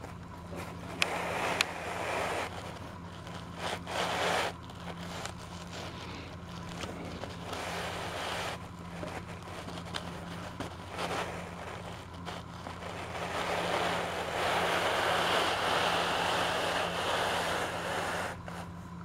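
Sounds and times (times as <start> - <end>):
plastic toys rustling and scraping: 0.0 - 18.8
steady low hum: 0.0 - 19.0.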